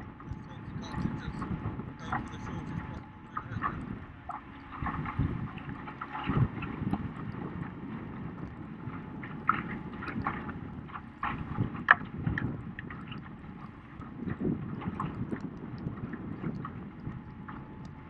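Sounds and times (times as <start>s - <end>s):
water splashing and slapping: 0.0s - 18.0s
wind buffeting microphone: 0.0s - 18.0s.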